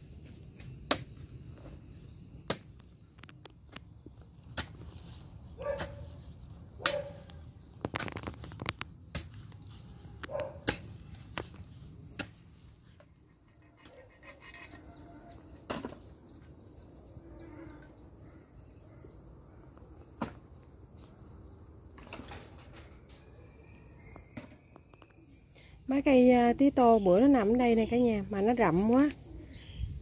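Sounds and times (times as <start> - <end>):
hoe chopping into soil: 4.4 - 5.0.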